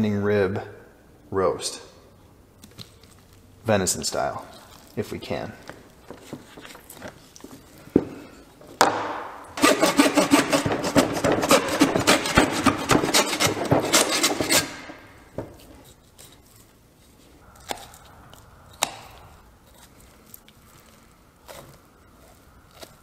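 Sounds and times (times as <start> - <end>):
hand saw cutting bone: 9.6 - 15.0.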